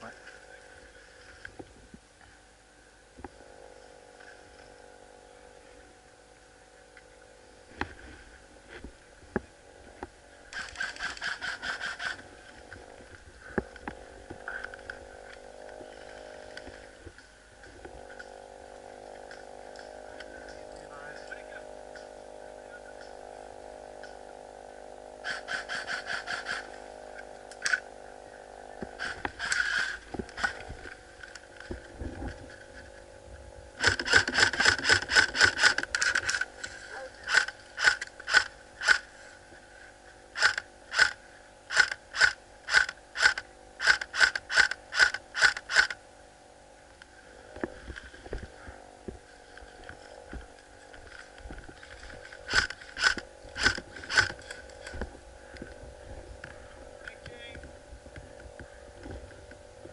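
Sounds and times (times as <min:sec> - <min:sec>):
airsoft rifle full-auto bursts: 0:10.5 - 0:12.2, 0:25.2 - 0:26.7, 0:29.0 - 0:30.6, 0:33.8 - 0:36.5, 0:37.3 - 0:39.1, 0:40.4 - 0:46.0, 0:52.4 - 0:54.9.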